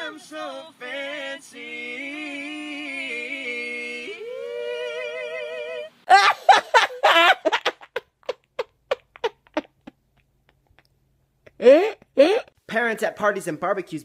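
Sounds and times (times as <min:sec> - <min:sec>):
man and woman singing: 0:00.0 - 0:06.0
woman laughing loudly: 0:06.1 - 0:10.0.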